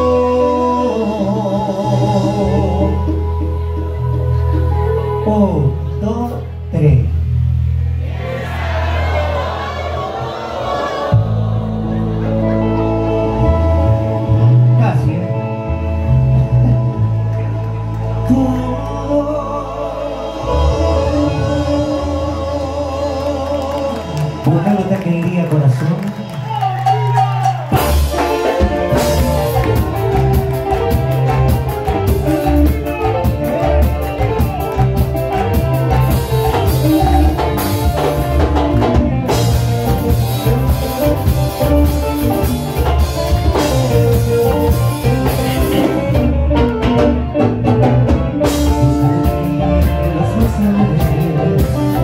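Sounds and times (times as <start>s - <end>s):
electric guitar: 0.0s - 8.9s, 10.9s - 52.0s
bass guitar: 0.0s - 52.0s
drum kit: 26.6s - 52.0s.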